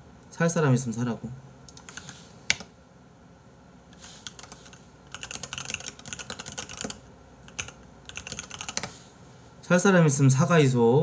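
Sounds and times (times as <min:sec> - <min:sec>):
computer keyboard typing: 0:01.7 - 0:02.7, 0:04.2 - 0:08.9.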